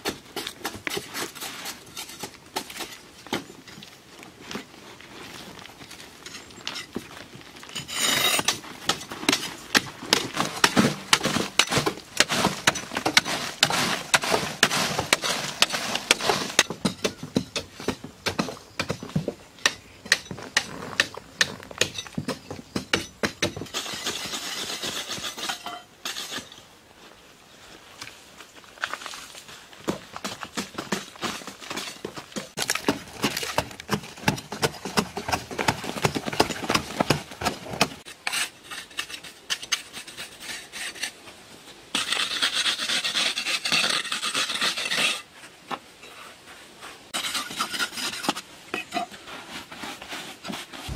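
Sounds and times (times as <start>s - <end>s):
metal blades chopping earth: 7.8s - 26.4s.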